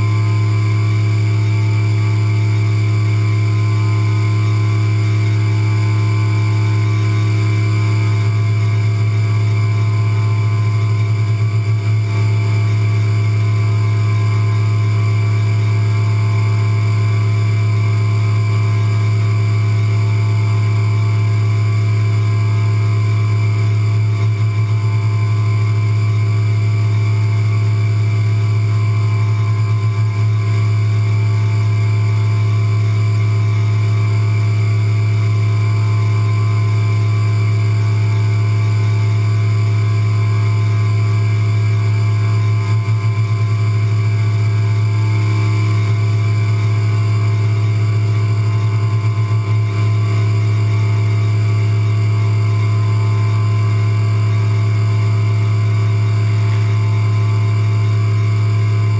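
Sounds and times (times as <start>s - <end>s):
high spindle whine: 0.0s - 58.9s
milling machine humming: 0.0s - 58.9s.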